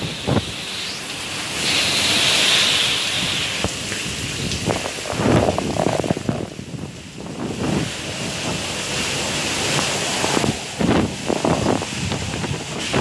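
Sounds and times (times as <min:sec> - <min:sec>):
wind gusts buffeting microphone: 0:00.0 - 0:00.7, 0:02.4 - 0:13.0
heavy rain: 0:00.0 - 0:13.0
strong wind: 0:00.0 - 0:13.0.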